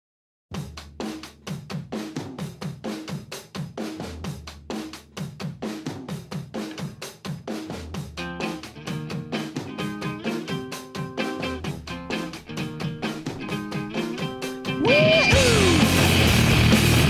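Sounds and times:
drum kit rock beat: 0:00.5 - 0:17.0.

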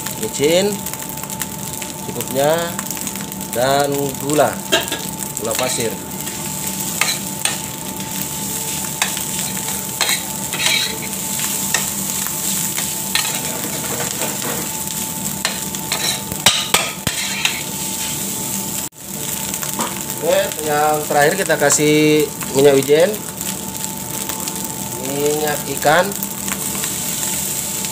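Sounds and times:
fried rice sizzling: 0:00.0 - 0:27.9
metal spoon scraping pan: 0:09.0 - 0:11.1, 0:15.5 - 0:17.7.

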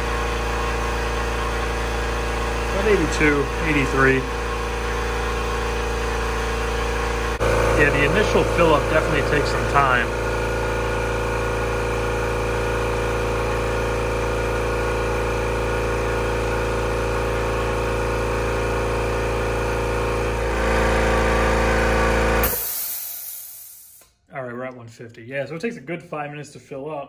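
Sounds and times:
air compressor motor hum: 0:00.0 - 0:24.2
sharp hiss of air: 0:22.4 - 0:24.0.

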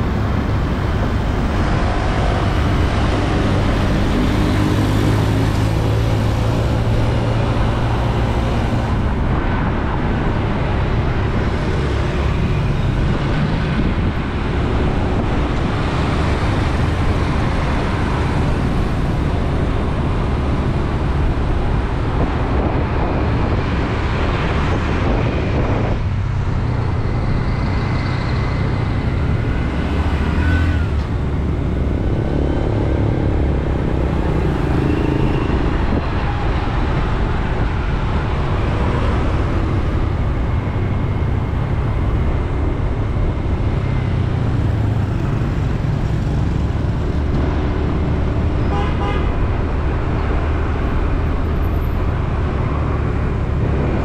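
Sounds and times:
low engine hum: 0:00.0 - 0:54.0
motorbike and car engines: 0:00.0 - 0:54.0
road noise: 0:00.0 - 0:54.0.

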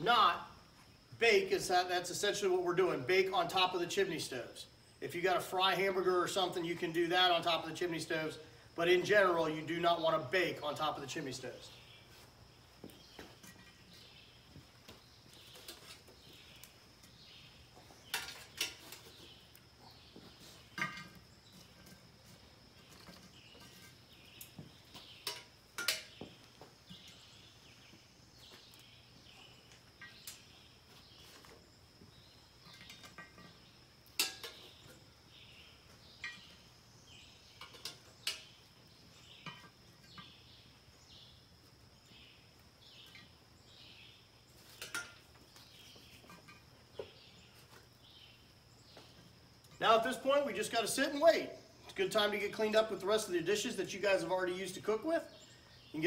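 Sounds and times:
faint background hiss: 0:00.0 - 0:56.0
metal tongs clinking: 0:34.2 - 0:34.6.

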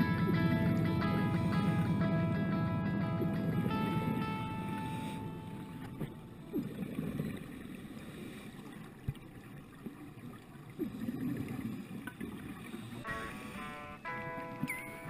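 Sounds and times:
muffled underwater noise: 0:00.0 - 0:15.0
bubbling: 0:03.2 - 0:13.2.

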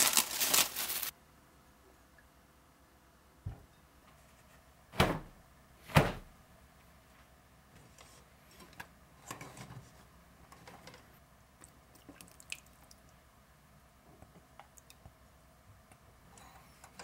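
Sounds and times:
cloth rustling: 0:00.0 - 0:01.1.

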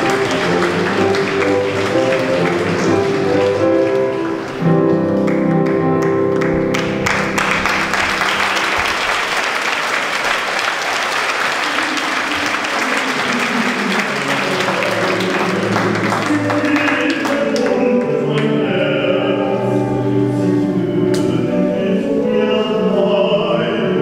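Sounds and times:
live music: 0:00.0 - 0:10.4
audience clapping: 0:00.0 - 0:18.6.

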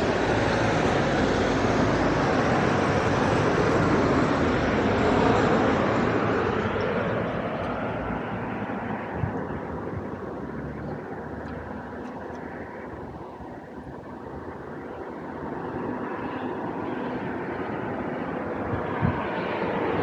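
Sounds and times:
distant vehicle noise rumble: 0:00.0 - 0:20.0.

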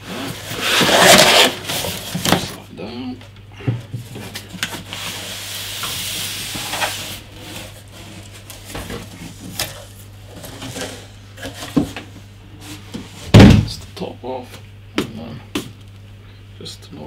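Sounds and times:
cardboard box scraping: 0:00.0 - 0:02.6.

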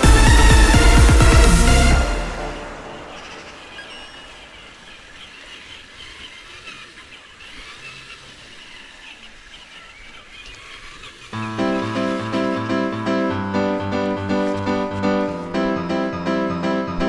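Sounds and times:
outdoor background noise: 0:02.0 - 0:12.8.

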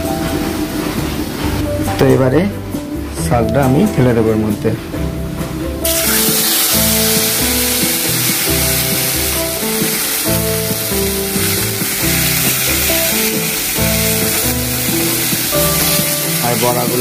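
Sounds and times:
background music with steady beat: 0:00.0 - 0:17.0
greens sizzling in hot oil: 0:05.8 - 0:17.0.

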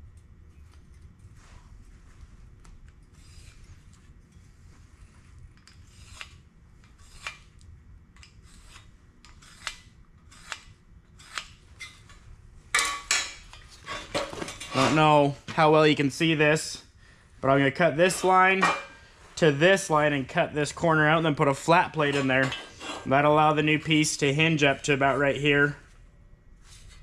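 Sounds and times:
marker scratching on steel tube: 0:03.1 - 0:03.9, 0:05.8 - 0:07.5, 0:08.4 - 0:11.5.

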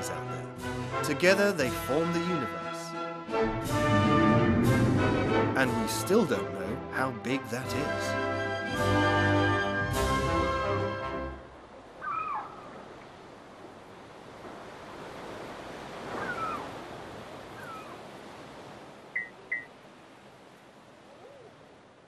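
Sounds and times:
ocean surf rushing: 0:03.2 - 0:08.2, 0:11.1 - 0:22.0
sliding animal calls: 0:12.0 - 0:12.8, 0:16.0 - 0:16.8, 0:17.5 - 0:18.0.

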